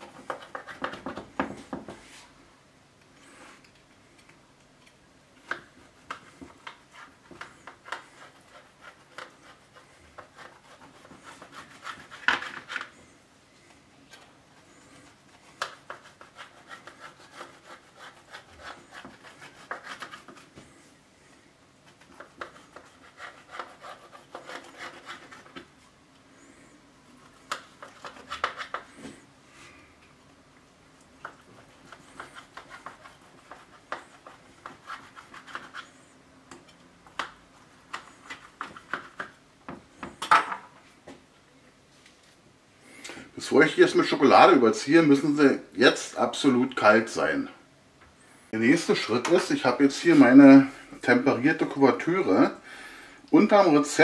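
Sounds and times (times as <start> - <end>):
knife sawing through crunchy pastry: 6.9 - 12.9, 14.7 - 20.5, 22.1 - 25.6.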